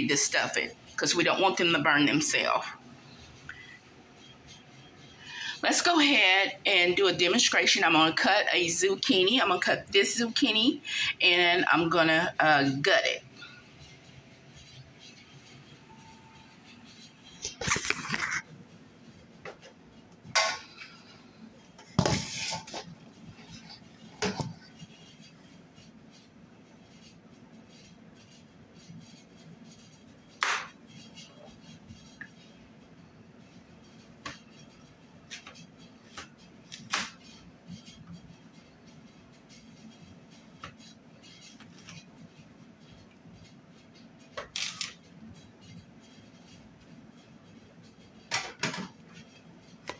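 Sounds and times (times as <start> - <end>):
utensil scraping: 20.6 - 26.3.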